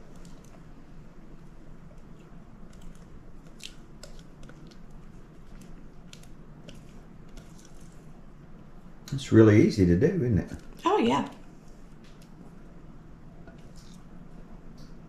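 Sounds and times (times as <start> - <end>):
low steady hum: 0.0 - 15.0
squishy filling sliding: 2.1 - 8.2.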